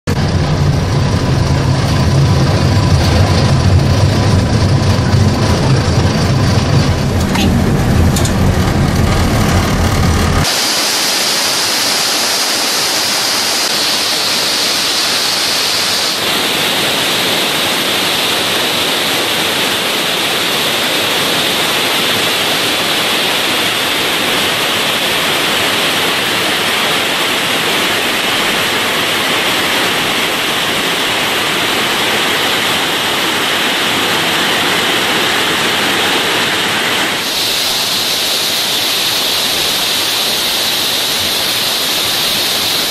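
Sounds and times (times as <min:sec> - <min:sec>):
waterfall rushing over rocks: 0:00.0 - 0:42.9
car cabin rumble: 0:00.1 - 0:10.5.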